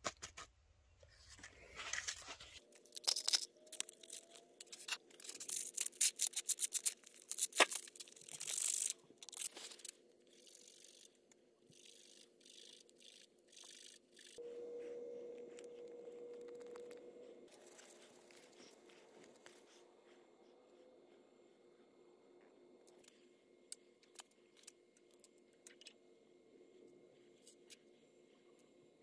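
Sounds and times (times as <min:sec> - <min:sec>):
paper crinkling: 0:01.2 - 0:09.9.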